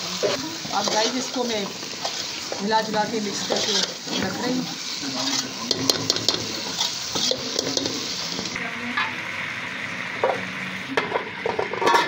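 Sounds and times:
curry sizzling: 0.0s - 12.0s
ladle scraping a pot: 0.7s - 2.6s, 3.3s - 4.4s, 5.2s - 8.6s, 11.4s - 12.0s.

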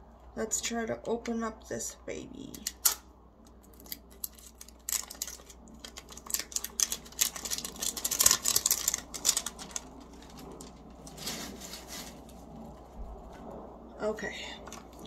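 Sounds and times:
packaging crinkling and crackling: 2.6s - 13.6s, 14.6s - 15.0s.

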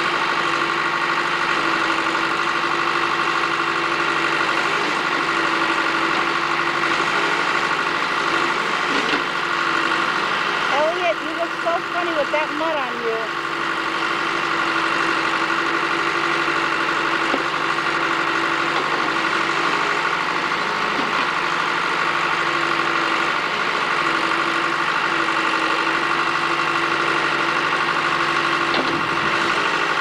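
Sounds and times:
backhoe engine running: 0.0s - 30.0s.

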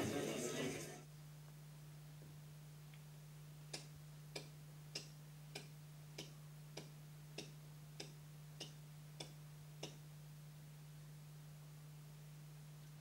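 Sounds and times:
faint steady hum: 0.0s - 13.0s
clock ticking: 3.7s - 10.0s.

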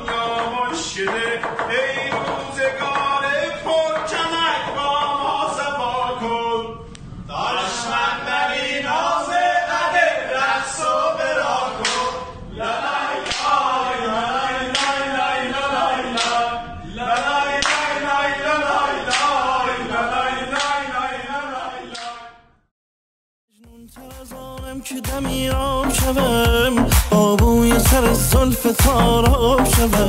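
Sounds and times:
men singing a chant: 0.0s - 22.3s, 23.6s - 30.0s
sharp hand claps: 11.8s - 12.1s, 13.2s - 13.6s, 14.7s - 15.0s, 16.2s - 16.4s, 17.2s - 17.9s, 19.1s - 19.3s.

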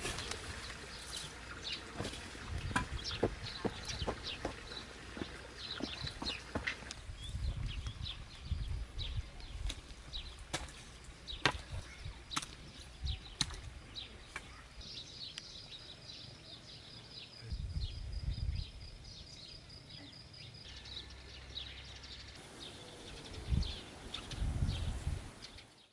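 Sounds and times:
shovel striking wet soil: 0.0s - 7.0s, 9.6s - 12.8s, 13.4s - 14.5s
birds chirping: 0.0s - 25.9s.

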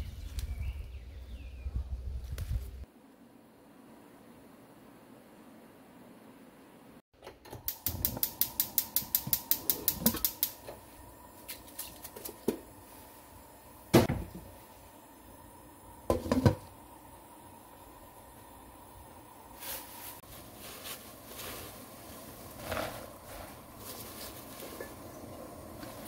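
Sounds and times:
burner igniter clicking: 7.2s - 10.8s.

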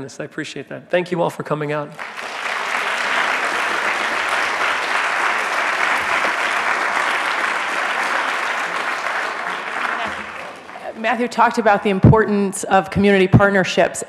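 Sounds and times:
audience applauding: 2.0s - 11.6s.

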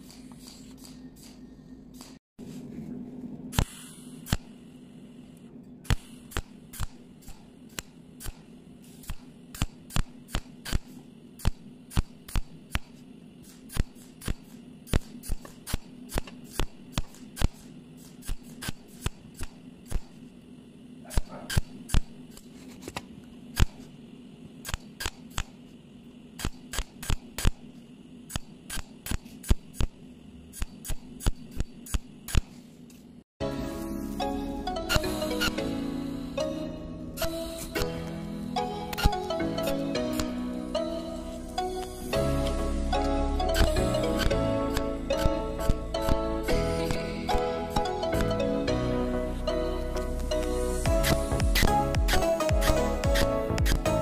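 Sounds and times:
welding pulses snapping: 0.0s - 2.2s, 3.5s - 4.6s, 5.3s - 20.4s, 21.0s - 25.7s, 26.3s - 32.6s, 38.8s - 40.5s, 41.2s - 48.4s, 50.0s - 54.0s
steady low hum: 0.0s - 54.0s.

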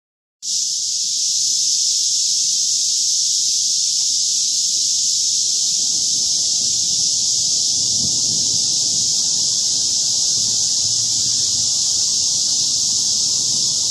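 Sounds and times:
cicadas buzzing: 0.4s - 13.9s
distant thunder rumble: 5.5s - 13.4s.

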